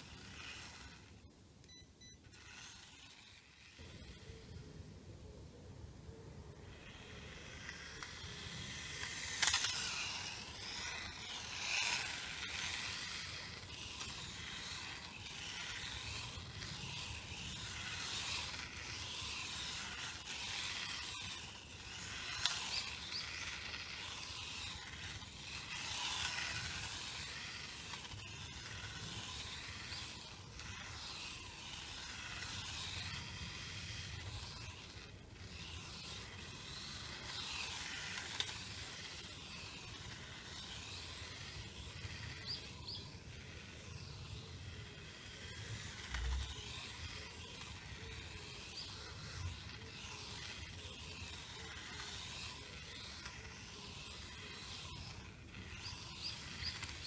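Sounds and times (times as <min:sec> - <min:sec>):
small electric motor whining: 0:00.0 - 0:05.4, 0:06.1 - 0:57.0
tyres hissing on asphalt: 0:35.5 - 0:57.0.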